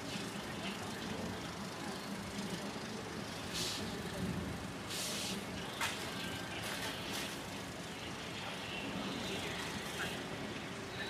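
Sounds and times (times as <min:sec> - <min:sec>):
short hissing bursts: 0:03.5 - 0:03.9, 0:04.9 - 0:05.5.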